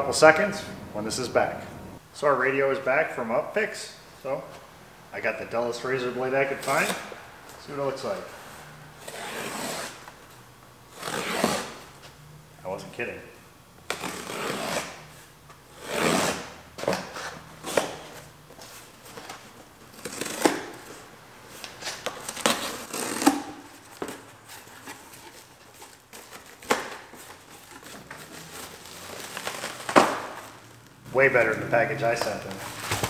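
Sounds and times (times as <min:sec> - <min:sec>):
razor blade slitting tape: 0:11.0 - 0:11.8, 0:13.9 - 0:15.0, 0:15.8 - 0:16.5
plastic packing crinkling: 0:24.6 - 0:30.8
cardboard flaps pulled back: 0:32.6 - 0:33.0.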